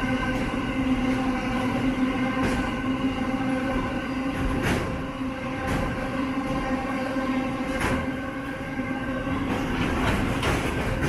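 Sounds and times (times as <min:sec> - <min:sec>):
wheels clacking on rail joints: 0:00.0 - 0:03.0, 0:03.7 - 0:06.8, 0:09.3 - 0:11.0
freight train rumbling: 0:00.0 - 0:11.0.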